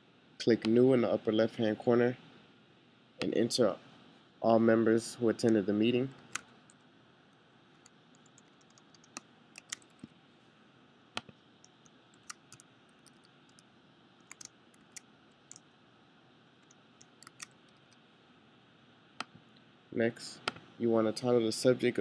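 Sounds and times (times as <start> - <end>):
faint steady hiss: 0.0 - 22.0
computer keyboard keystrokes: 8.2 - 10.1, 11.2 - 13.6, 14.2 - 15.6, 16.6 - 18.0.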